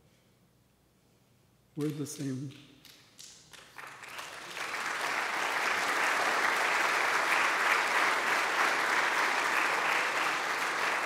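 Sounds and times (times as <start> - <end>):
audience applauding: 3.5 - 11.0.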